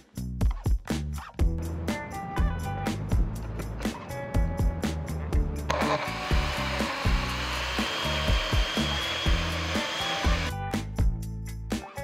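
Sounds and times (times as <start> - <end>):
background music with steady beat: 0.0 - 12.0
blender motor running: 5.7 - 10.6.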